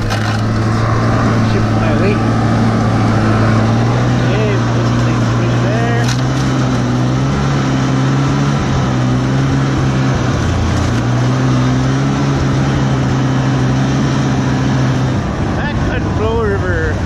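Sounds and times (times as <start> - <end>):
snowmobile engine running: 0.0 - 17.0.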